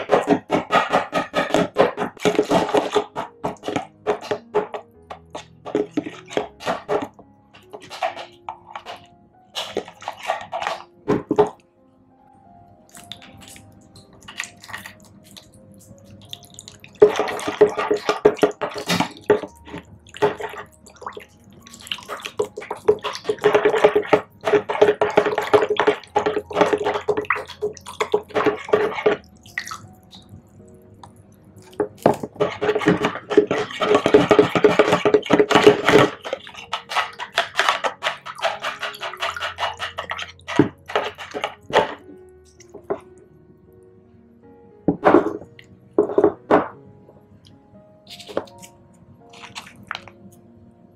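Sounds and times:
soft background music: 0.0s - 50.9s
milk splashing into a bowl: 49.3s - 50.2s.

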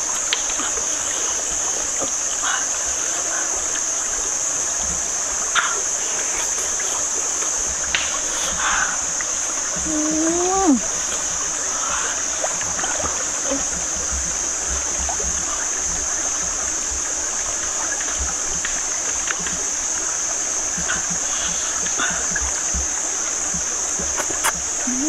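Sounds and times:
stream running over stones: 0.0s - 25.0s
faint clicks: 5.6s - 9.8s.

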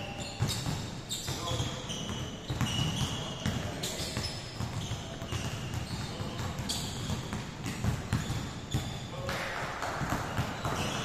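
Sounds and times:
basketballs bouncing: 0.0s - 11.0s
sneaker squeaks: 0.0s - 11.0s.

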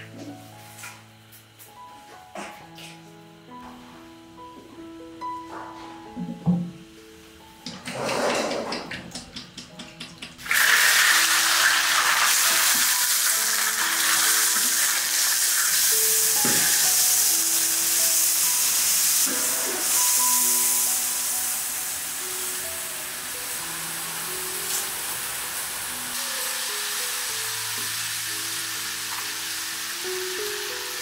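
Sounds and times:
light background music: 0.0s - 31.0s
hot oil sizzling: 10.4s - 31.0s.

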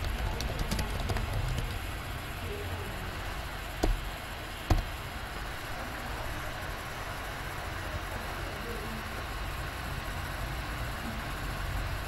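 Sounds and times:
loud sharp keyboard clacks: 0.0s - 2.1s, 3.8s - 4.1s.

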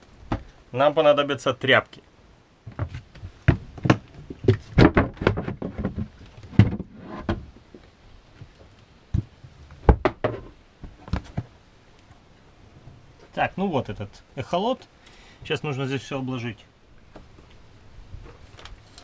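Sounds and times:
hatch knocks and clunks: 0.3s - 0.5s, 2.7s - 7.8s, 9.1s - 11.5s.

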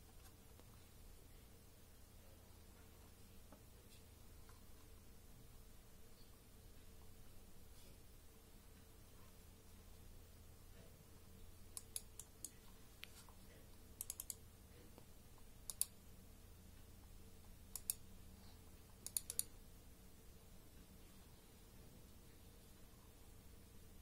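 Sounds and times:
mouse buttons clicking: 11.7s - 13.2s, 14.0s - 14.4s, 15.0s - 16.0s, 17.7s - 18.0s, 19.0s - 19.5s.

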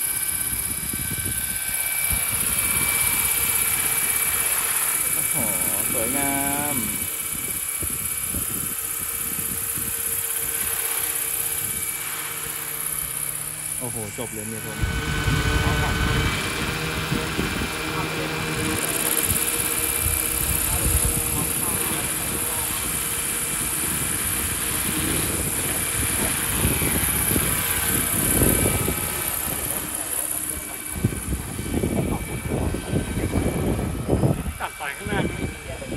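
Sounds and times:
high drive whine: 0.0s - 35.9s
model helicopter rotor beating: 0.0s - 35.9s
gusty low rumble: 14.6s - 35.9s.

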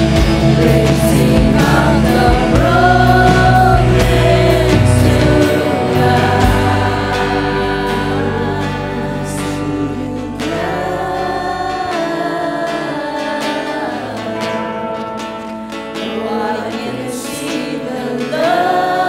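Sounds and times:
bass guitar: 0.0s - 12.3s
backing singers: 0.0s - 19.0s
electric guitars: 0.0s - 19.0s
woman singing lead: 0.0s - 19.0s.

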